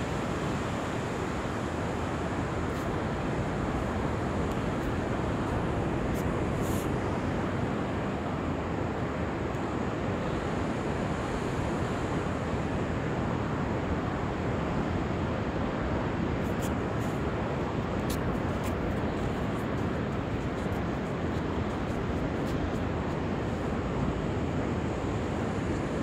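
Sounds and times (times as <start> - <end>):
wind on microphone: 0.0 - 26.0.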